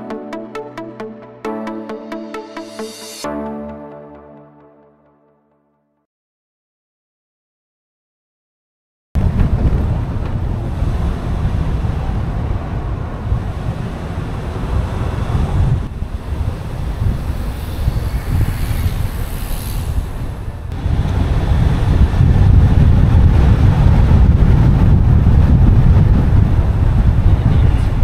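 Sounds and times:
road noise: 0:09.2 - 0:25.5
wind buffeting microphone: 0:09.2 - 0:28.0.

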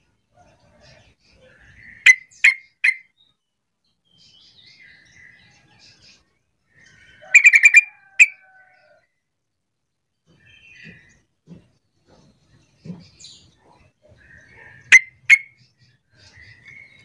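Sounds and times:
bird soft chatter: 0:10.2 - 0:17.0.

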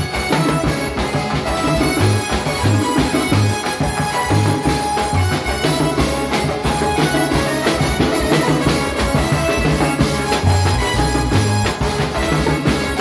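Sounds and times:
drums and cymbal struck busily: 0:00.0 - 0:13.0.

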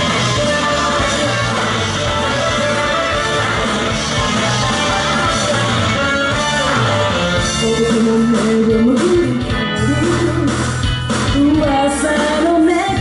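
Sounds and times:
rock guitar: 0:00.0 - 0:13.0
woman singing into a microphone: 0:07.4 - 0:10.7, 0:11.3 - 0:13.0.

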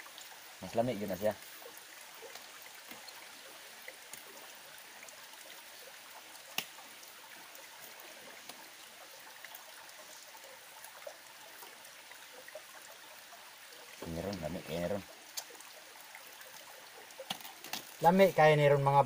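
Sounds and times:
stream running water: 0:00.0 - 0:19.0
small ticks and clicks: 0:01.4 - 0:07.6, 0:15.3 - 0:18.0.

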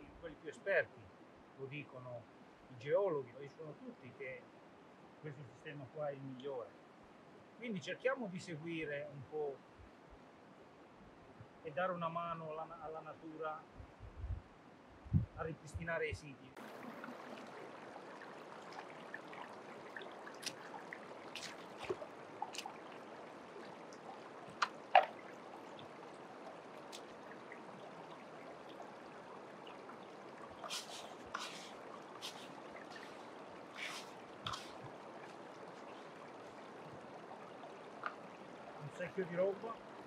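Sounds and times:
stream trickling over stones: 0:16.6 - 0:40.0.

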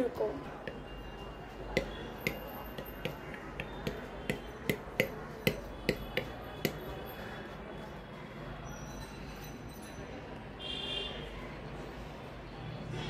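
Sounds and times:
sharp clicks or taps: 0:01.7 - 0:06.8.

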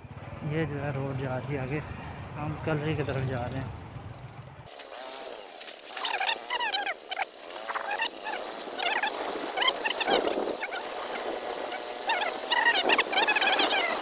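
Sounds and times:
motorbike engine hum: 0:00.0 - 0:14.0
small birds chirping: 0:06.0 - 0:14.0.

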